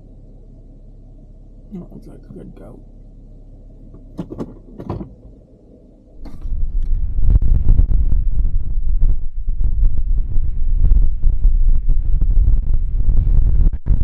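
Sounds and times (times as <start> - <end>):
vehicle cabin hum: 0.0 - 14.0
wind buffeting microphone: 6.2 - 14.0.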